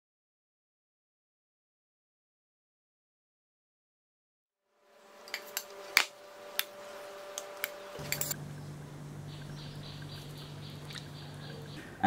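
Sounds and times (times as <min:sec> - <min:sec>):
steady low hum: 0:04.8 - 0:12.0.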